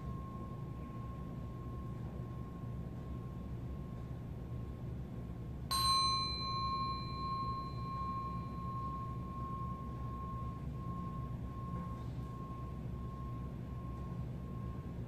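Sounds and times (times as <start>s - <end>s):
small metal bell ringing: 5.7s - 14.9s.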